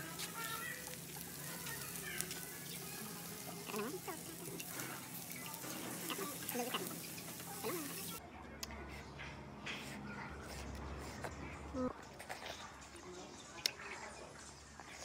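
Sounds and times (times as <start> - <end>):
food sizzling on a grill: 0.0 - 8.2.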